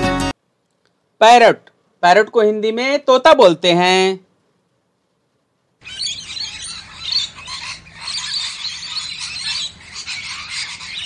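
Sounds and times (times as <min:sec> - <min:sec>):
lorikeets chattering and screeching: 0:05.8 - 0:11.0.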